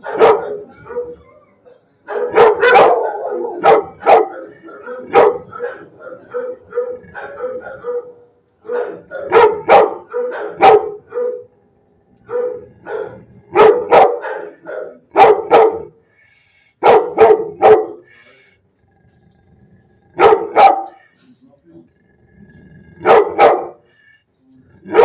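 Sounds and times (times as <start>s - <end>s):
dog barking: 0.0s - 1.2s, 2.0s - 11.5s, 12.3s - 16.0s, 16.8s - 18.2s, 20.2s - 21.1s, 23.0s - 23.9s.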